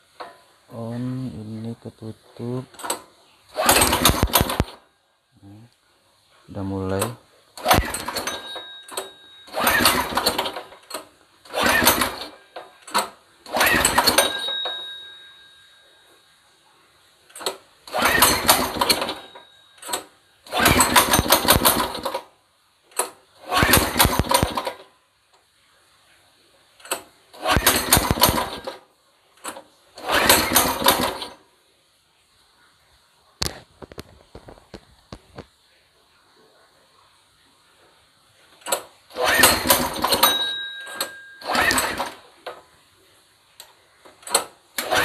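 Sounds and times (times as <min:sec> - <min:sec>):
small engine pull-starting: 0:02.7 - 0:04.8, 0:07.6 - 0:15.0, 0:17.3 - 0:22.3, 0:22.9 - 0:24.9, 0:26.8 - 0:28.8, 0:29.4 - 0:31.4, 0:38.6 - 0:42.6, 0:44.2 - 0:45.0.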